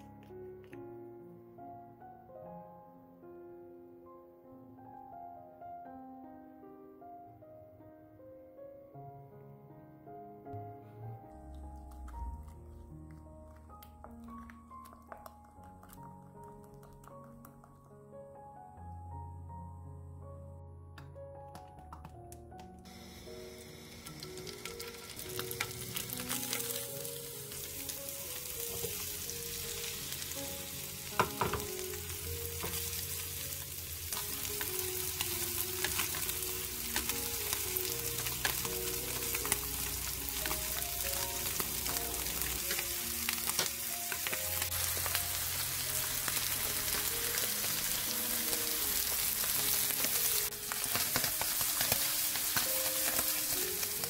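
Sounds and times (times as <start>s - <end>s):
fish sizzling in oil: 22.9s - 54.0s.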